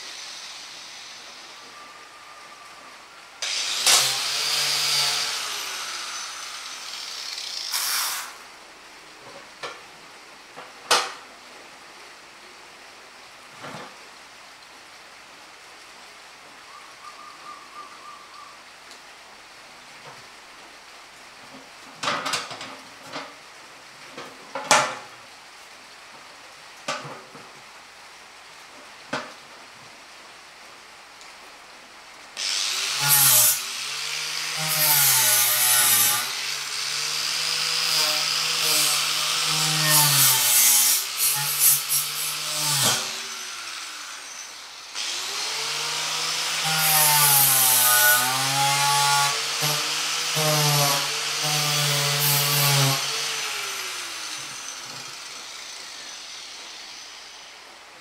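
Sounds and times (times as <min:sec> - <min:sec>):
angle grinder cutting metal: 0:00.0 - 0:01.6, 0:03.4 - 0:08.4, 0:32.4 - 0:57.6.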